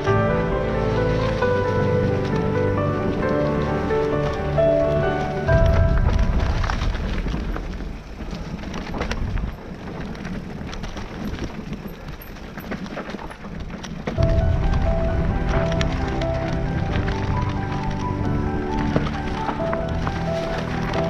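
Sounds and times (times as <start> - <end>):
background music: 0.0 - 7.6, 14.2 - 21.0
bike rattling over stones: 0.0 - 21.0
wind buffeting microphone: 0.0 - 21.0.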